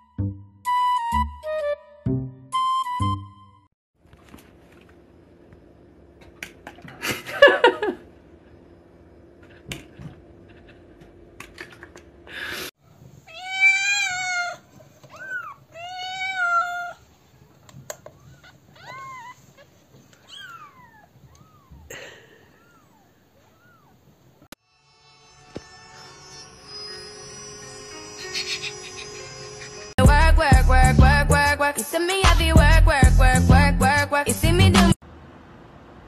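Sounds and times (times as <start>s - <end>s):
cat meowing: 13.2s - 17.1s, 18.2s - 21.9s.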